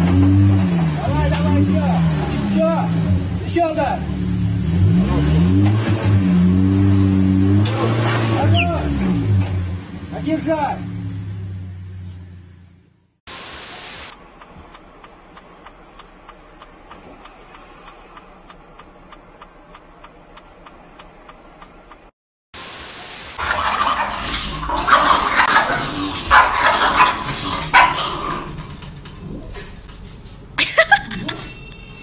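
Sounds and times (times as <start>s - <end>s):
short bursts of hiss: 13.3s - 14.1s
faint regular ticking: 14.1s - 22.1s
puppy yapping: 26.2s - 28.6s.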